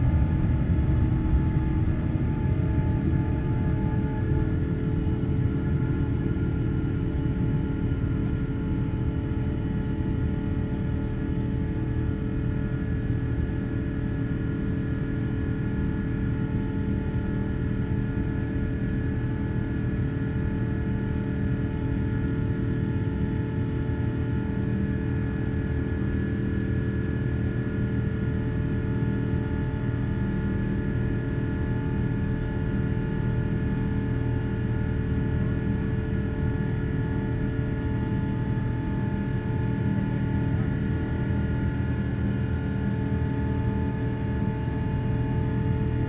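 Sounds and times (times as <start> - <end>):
jet engines droning: 0.0 - 13.3.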